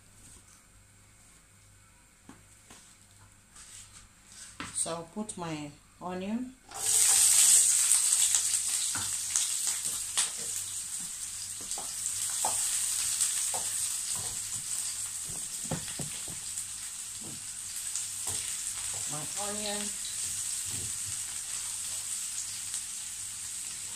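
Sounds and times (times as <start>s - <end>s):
onion sizzling in oil: 6.7s - 23.9s
spatula scraping and tapping pan: 11.6s - 16.4s.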